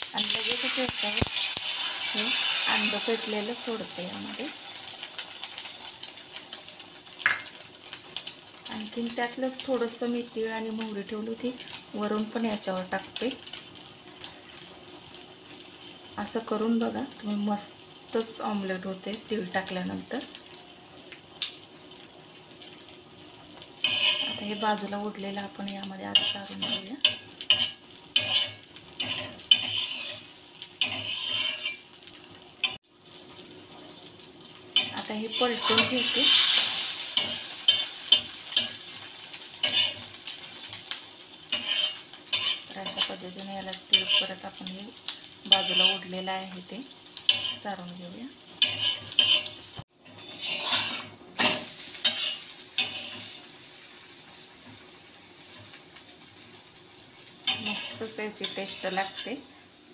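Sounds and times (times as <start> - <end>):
omelette sizzling in hot oil: 0.0 - 59.9
metal spatula scraping pan: 23.8 - 24.8, 26.1 - 31.9, 34.8 - 38.8, 39.6 - 40.2, 41.5 - 44.4, 45.5 - 46.2, 47.3 - 47.8, 48.6 - 53.4, 57.4 - 59.3.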